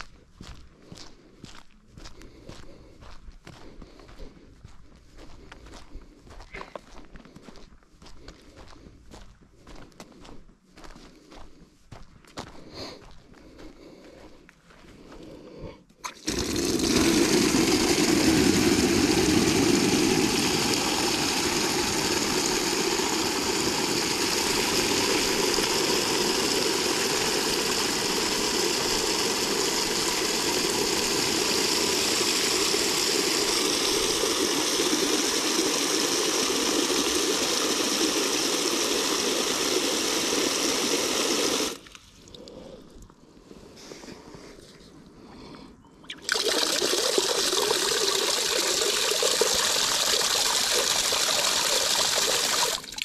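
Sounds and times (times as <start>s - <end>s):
tap water running into bag: 16.0s - 42.4s, 46.1s - 53.0s.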